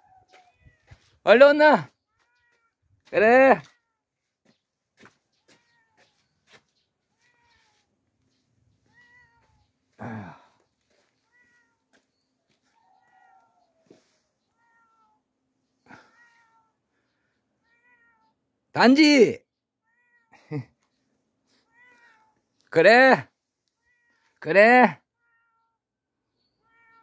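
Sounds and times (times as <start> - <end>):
cat meowing: 2.2 - 2.8, 5.5 - 6.1, 7.1 - 7.9, 8.8 - 9.7, 11.2 - 11.9, 12.7 - 15.2, 15.9 - 16.8, 17.6 - 18.4, 19.8 - 20.4, 21.6 - 22.4, 23.8 - 24.4, 25.1 - 25.8, 26.6 - 27.0.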